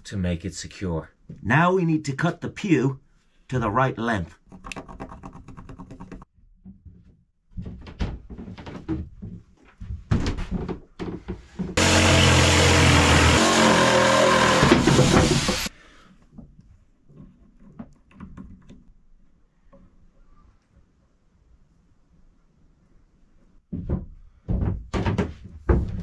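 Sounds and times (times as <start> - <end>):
power saw cutting wood: 11.8 - 15.7.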